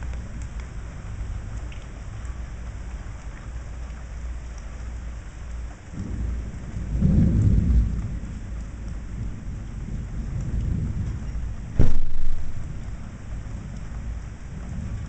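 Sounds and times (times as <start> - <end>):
steady rain: 0.0 - 15.0
thunder rumbling: 5.9 - 15.0.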